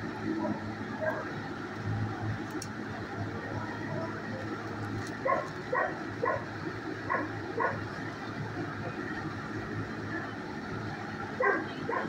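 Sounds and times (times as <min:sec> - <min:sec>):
steady low hum: 0:00.0 - 0:12.0
dog barking: 0:05.2 - 0:06.5, 0:07.1 - 0:07.8, 0:11.4 - 0:12.0.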